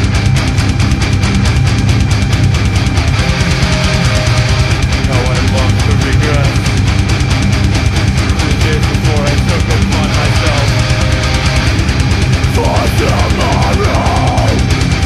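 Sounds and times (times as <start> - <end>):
live metal band playing: 0.0 - 15.0
vocalist singing into microphone: 12.5 - 14.7.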